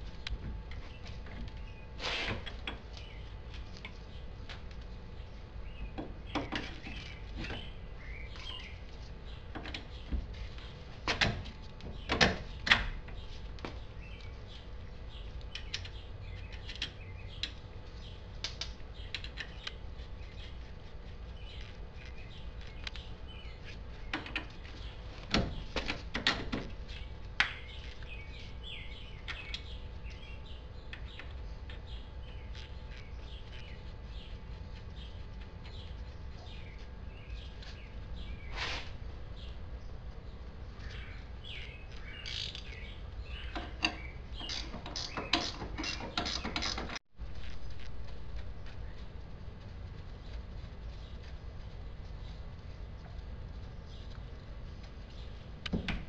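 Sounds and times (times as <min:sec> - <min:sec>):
faint birds chirping: 0:00.0 - 0:56.0
hand tools clicking on metal: 0:43.5 - 0:47.0.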